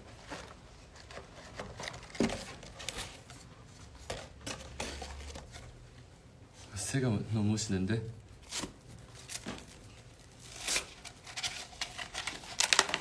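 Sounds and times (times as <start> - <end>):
paper scrolls tapping and rustling: 0.0 - 5.8, 8.6 - 13.0.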